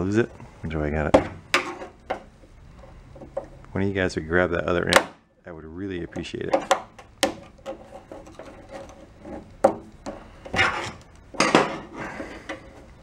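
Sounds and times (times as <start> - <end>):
screwdriver scraping: 7.4 - 11.1.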